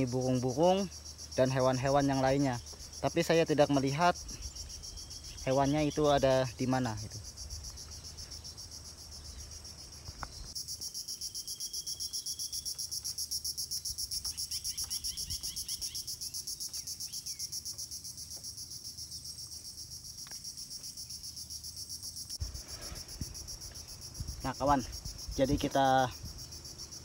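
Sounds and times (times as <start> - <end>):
insects buzzing: 0.0 - 27.0
faint bird chirps: 14.3 - 17.5.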